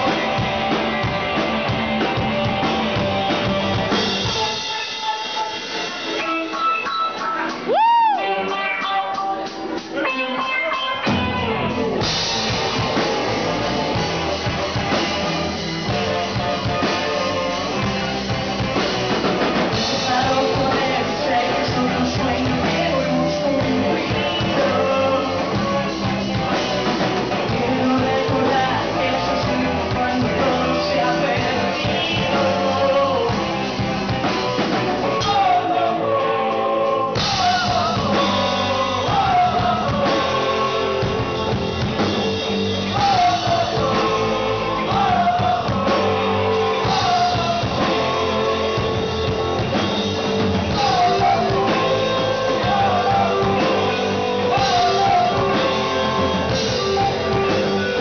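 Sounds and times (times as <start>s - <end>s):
live rock band playing: 0.0s - 58.0s
person singing: 19.6s - 33.8s, 34.7s - 41.8s, 42.8s - 49.7s, 50.5s - 58.0s.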